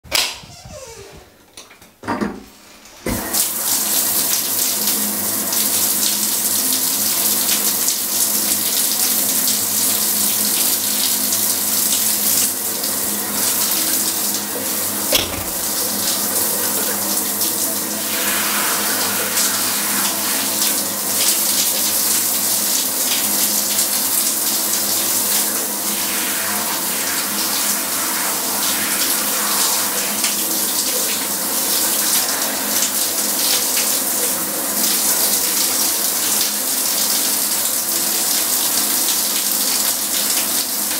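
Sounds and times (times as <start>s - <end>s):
short knock: 15.1s - 15.8s
shower spray running: 15.1s - 19.3s.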